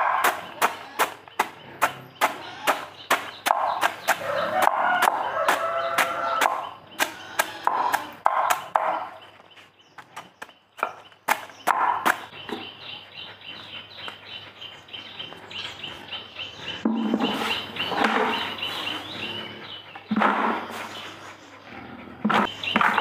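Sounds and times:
chickens clucking: 0:00.0 - 0:23.0.

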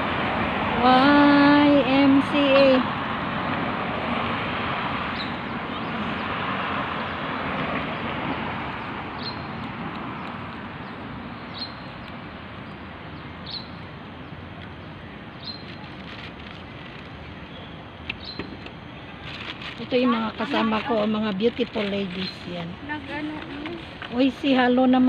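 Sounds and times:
car passing: 0:00.0 - 0:17.5
bird chirping: 0:05.2 - 0:06.2, 0:08.8 - 0:16.0, 0:16.6 - 0:19.2.

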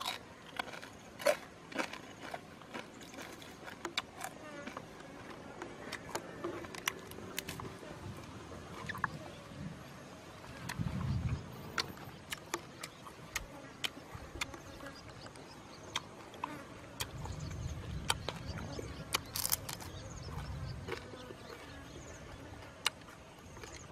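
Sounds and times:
meat tearing and chewing: 0:00.0 - 0:07.7, 0:19.0 - 0:21.6.

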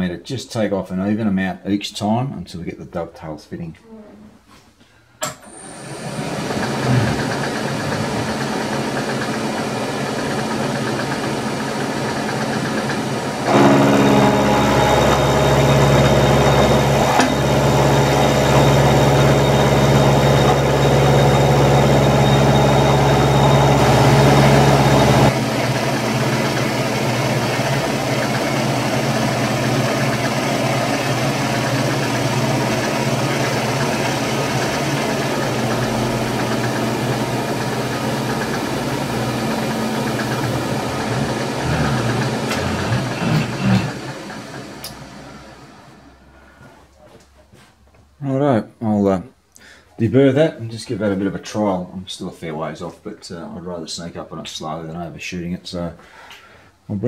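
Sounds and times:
milling machine running: 0:05.2 - 0:46.2.

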